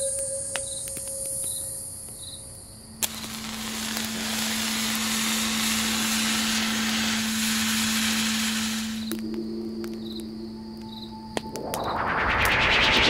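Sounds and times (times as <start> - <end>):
loud hiss: 3.0 - 9.2.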